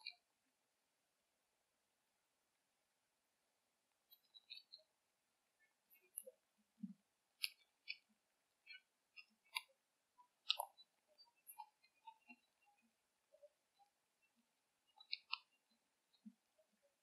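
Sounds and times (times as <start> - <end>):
faint irregular clicks: 0.0 - 0.3, 3.9 - 4.9, 5.6 - 16.7.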